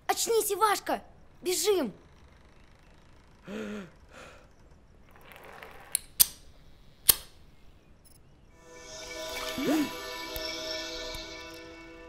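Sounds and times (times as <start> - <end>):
padlock clicking: 6.0 - 7.4.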